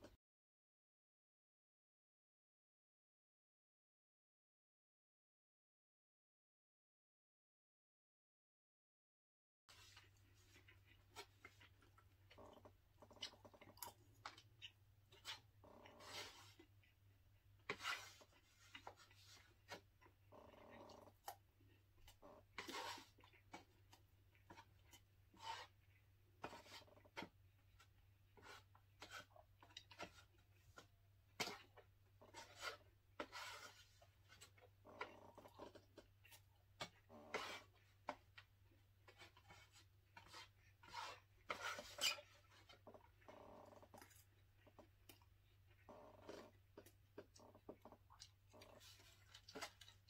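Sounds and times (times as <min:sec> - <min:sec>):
fork scraping foam container: 0:09.7 - 0:11.9, 0:12.6 - 0:16.8, 0:17.6 - 0:19.9, 0:22.0 - 0:25.8, 0:26.4 - 0:44.8, 0:45.9 - 0:50.0
soft chewing: 0:09.7 - 0:50.0.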